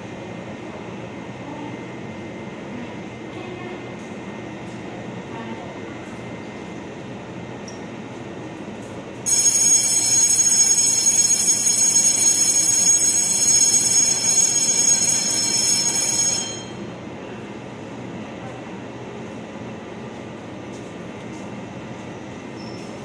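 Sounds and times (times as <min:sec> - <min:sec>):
electric departure bell ringing: 0:09.2 - 0:17.0.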